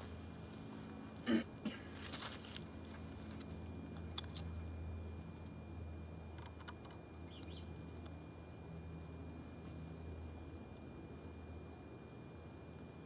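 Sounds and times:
low steady hum: 0.0 - 13.0
faint short chirps and ticks: 7.3 - 7.6.

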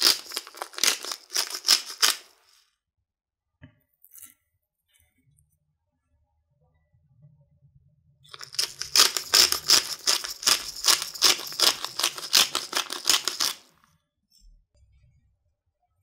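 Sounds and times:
pepper mill grinding: 0.0 - 2.4, 8.3 - 13.8.

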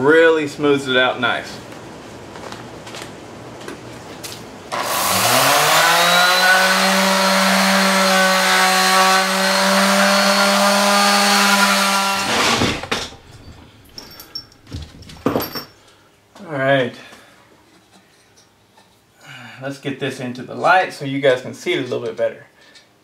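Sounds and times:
orbital sander on metal: 4.8 - 12.5.

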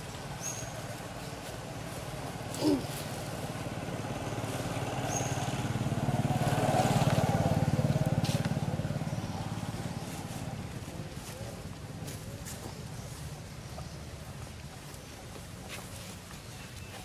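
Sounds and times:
vehicle engine passing: 0.0 - 12.0.

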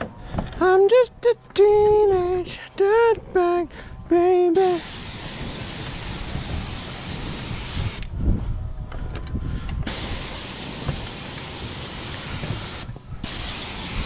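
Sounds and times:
paint sprayer hissing: 4.6 - 8.1, 9.9 - 14.0.

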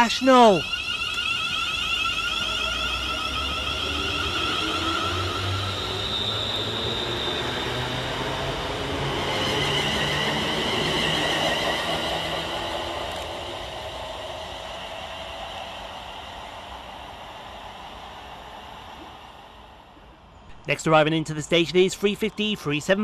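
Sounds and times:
electric train motors whining: 0.0 - 19.8
train wheels rumbling on rails: 2.4 - 16.2.

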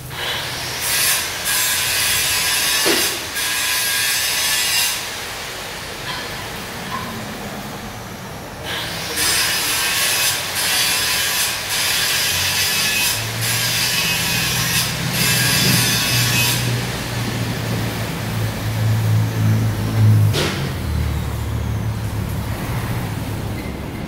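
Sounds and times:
arc welding crackling hiss: 0.0 - 6.7, 8.6 - 19.5.

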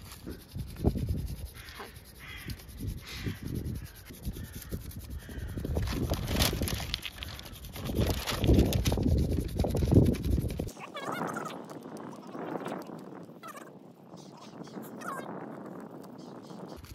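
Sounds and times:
stick scratching across paper: 0.0 - 10.7
crow cawing: 1.6 - 5.6
paper rustling: 5.6 - 10.7.

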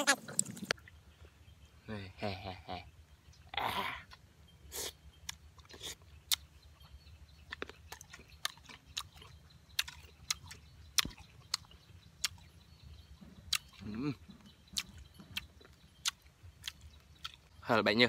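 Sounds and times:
person chewing crisp food: 4.1 - 12.6, 13.4 - 17.5.

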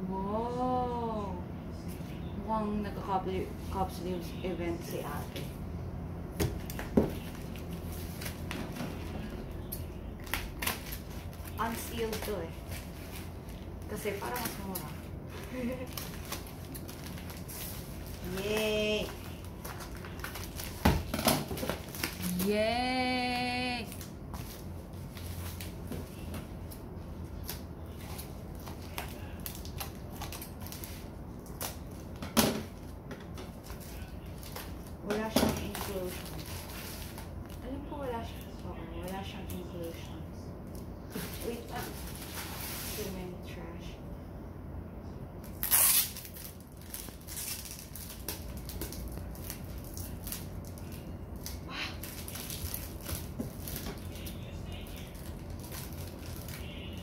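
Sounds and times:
plastic wrap crinkling: 6.7 - 22.9, 23.5 - 39.2, 45.4 - 57.0.

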